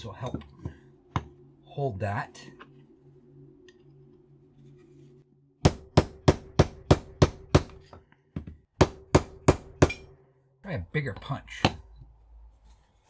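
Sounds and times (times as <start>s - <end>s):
hammer striking steel punch: 5.6s - 7.8s, 8.8s - 10.2s.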